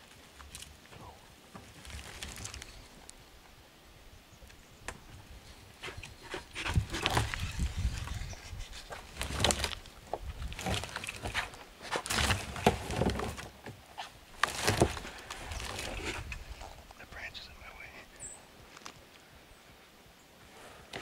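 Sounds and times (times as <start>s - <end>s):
wood cracking: 0.0s - 3.2s, 5.8s - 17.0s.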